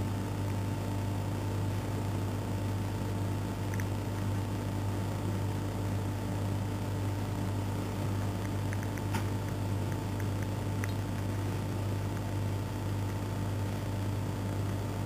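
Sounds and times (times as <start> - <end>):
low mechanical hum: 0.0 - 15.0
faint ticks: 8.4 - 11.4.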